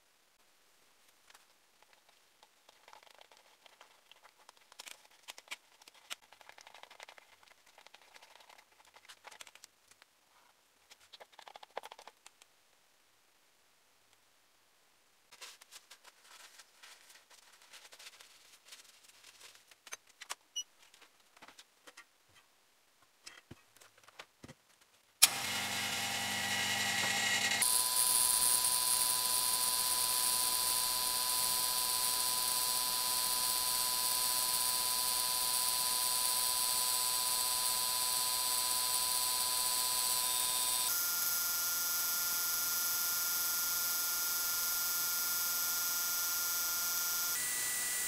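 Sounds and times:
vacuum pump whining: 25.2s - 41.2s.

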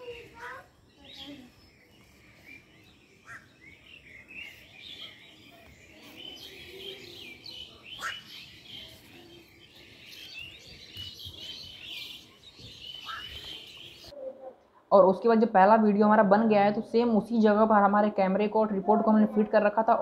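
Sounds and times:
small birds chirping: 0.0s - 14.8s.

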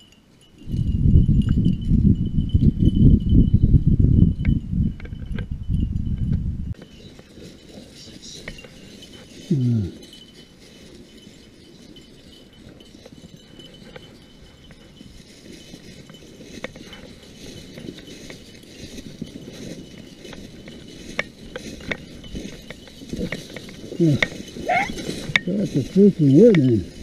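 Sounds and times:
footsteps through dry brush: 6.7s - 27.0s.

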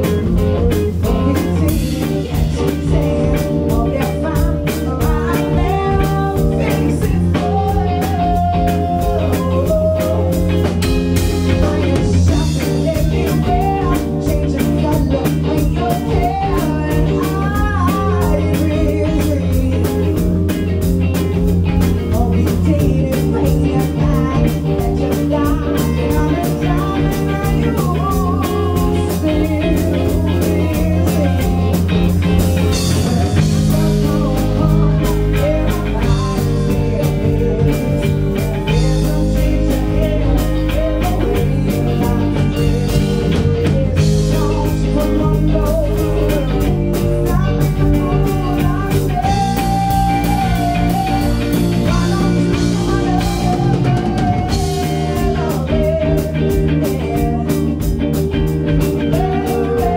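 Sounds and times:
drum kit: 0.0s - 59.9s
electric guitars: 0.0s - 59.9s
woman singing: 0.0s - 59.9s.

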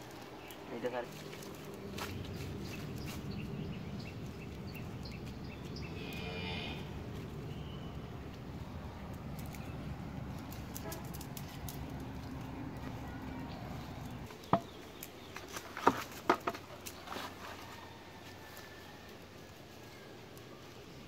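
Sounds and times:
net rustling on dry leaves: 0.0s - 5.4s.

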